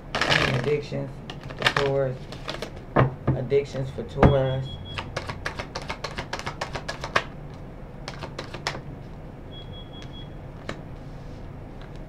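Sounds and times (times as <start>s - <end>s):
cards being shuffled: 0.1s - 2.8s, 5.0s - 7.3s, 8.1s - 8.8s.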